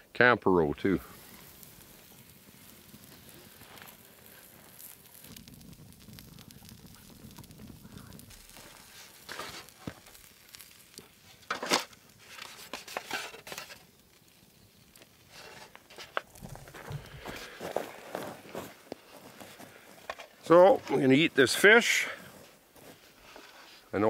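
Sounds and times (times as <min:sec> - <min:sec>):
foil tray crinkling: 0:08.3 - 0:13.9, 0:15.0 - 0:21.1.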